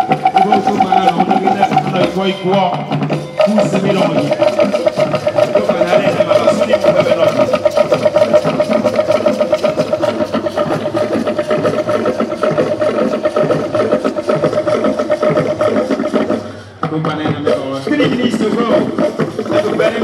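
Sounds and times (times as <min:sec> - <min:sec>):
fast percussion: 0:00.0 - 0:20.0.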